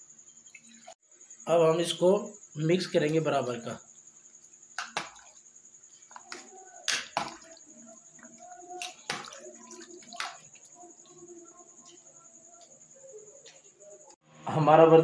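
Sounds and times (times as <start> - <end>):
liquid sloshing in a pot: 6.1 - 11.4.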